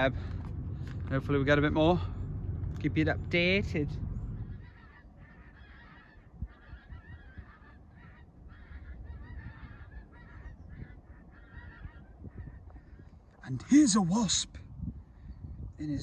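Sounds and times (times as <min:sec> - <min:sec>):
geese honking: 0:03.4 - 0:14.3.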